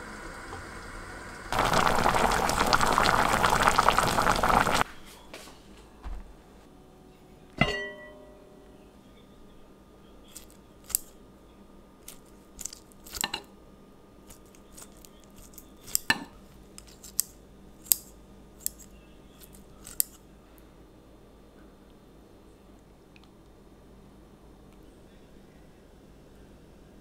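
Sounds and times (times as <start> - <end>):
scissors snipping meat: 19.4 - 20.2.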